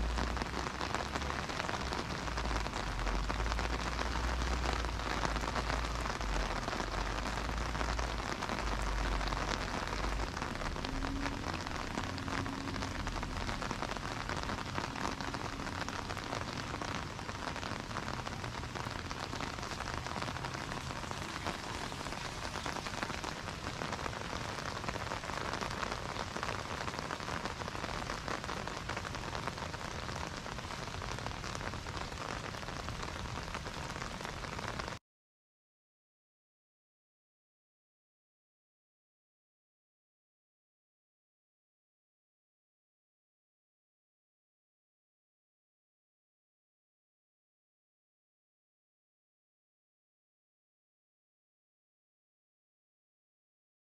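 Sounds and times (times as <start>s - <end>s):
steady rain falling: 0.0s - 35.0s.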